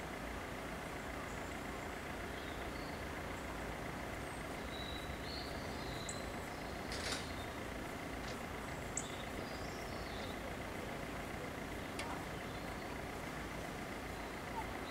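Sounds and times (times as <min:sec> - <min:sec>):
road traffic rumble: 0:00.0 - 0:14.9
bird chirps: 0:04.6 - 0:07.6, 0:08.9 - 0:10.6, 0:14.0 - 0:14.9.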